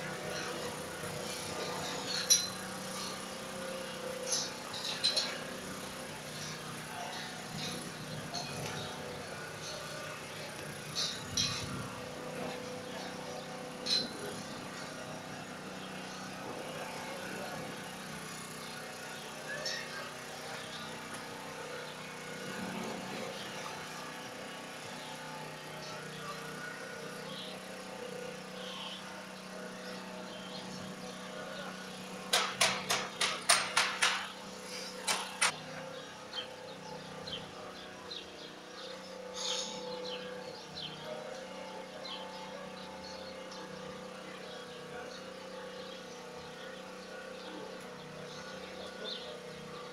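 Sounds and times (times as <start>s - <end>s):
sharp knocks: 32.3s - 34.3s.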